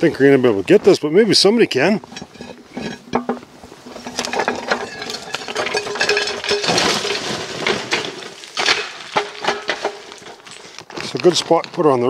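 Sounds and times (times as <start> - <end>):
rustling: 1.8 - 12.0.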